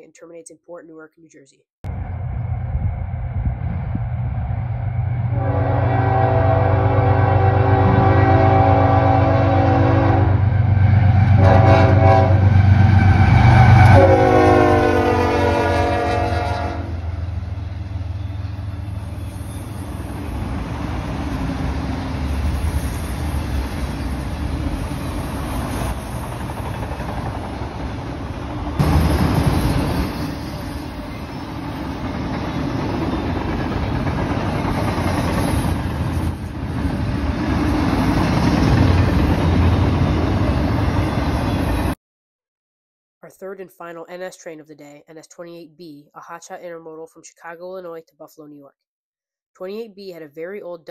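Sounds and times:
locomotive horn chord: 0:05.3 - 0:10.6, 0:11.2 - 0:17.2.

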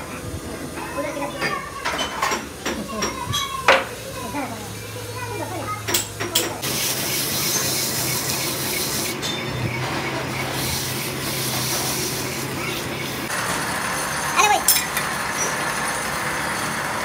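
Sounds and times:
metal lathe running: 0:04.6 - 0:17.0.

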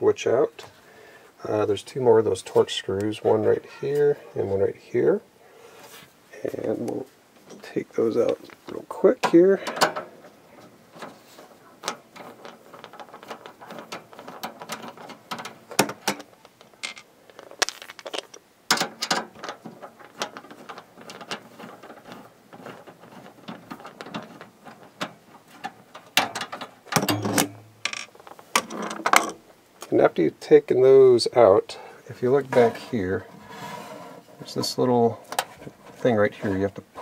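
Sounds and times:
knocks and handling noises: 0:05.8 - 0:29.9, 0:32.3 - 0:37.0.

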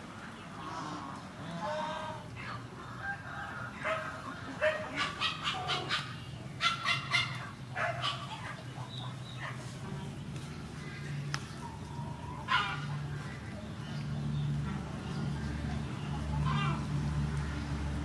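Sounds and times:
farmyard animals calling: 0:00.5 - 0:09.8, 0:10.8 - 0:13.6, 0:16.3 - 0:16.9.

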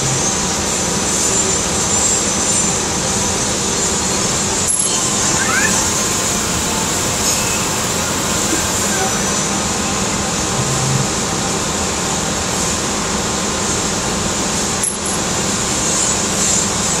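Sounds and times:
lathe hiss and hum: 0:00.0 - 0:17.0.

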